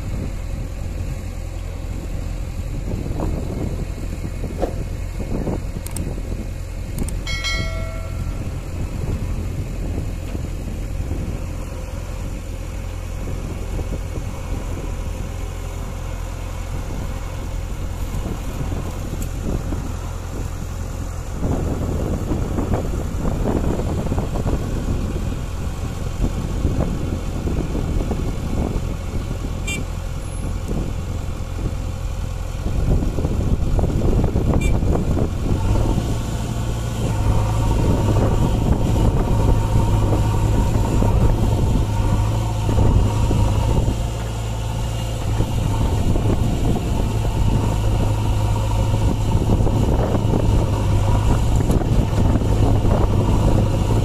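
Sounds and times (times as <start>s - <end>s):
diesel engine revving: 0.0s - 54.0s
backhoe digging soil: 34.6s - 54.0s.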